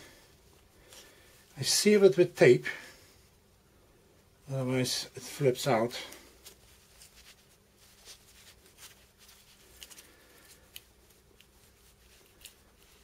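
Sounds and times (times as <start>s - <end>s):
faint clicks and rustles: 6.0s - 13.0s.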